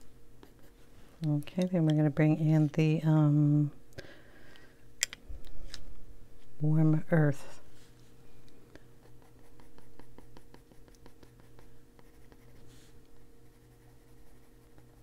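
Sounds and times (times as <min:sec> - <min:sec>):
steady low hum: 0:00.0 - 0:15.0
pencil scratching on paper: 0:09.0 - 0:12.7, 0:13.4 - 0:15.0.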